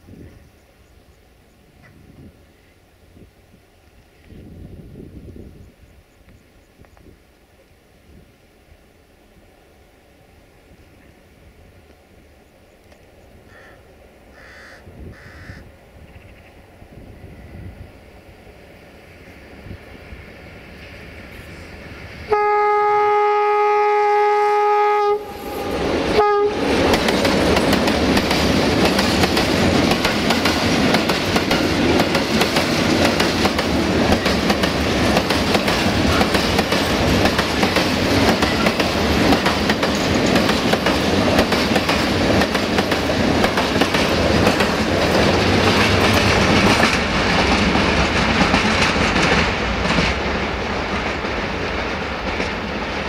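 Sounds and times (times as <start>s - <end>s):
freight train wheels on rails: 0.0s - 53.0s
locomotive air horn: 22.3s - 26.8s
wheels clattering over rail joints: 26.8s - 53.0s.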